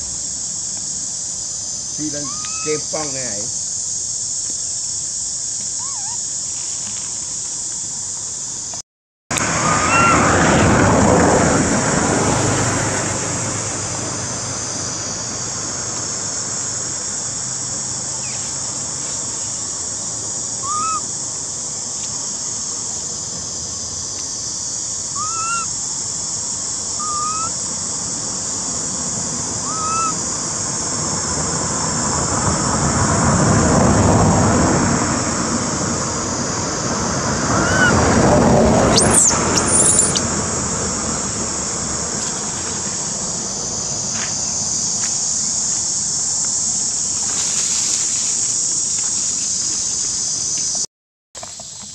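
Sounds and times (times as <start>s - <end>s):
steady high hiss: 0.0s - 8.8s, 13.7s - 32.0s, 38.8s - 51.9s
rushing wind-like noise: 9.3s - 17.8s, 25.8s - 50.5s
short rising squeaks: 38.8s - 40.3s.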